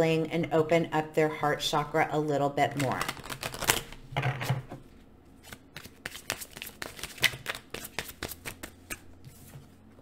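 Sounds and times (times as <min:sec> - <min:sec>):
cards being shuffled: 0:02.8 - 0:04.0, 0:05.4 - 0:09.6.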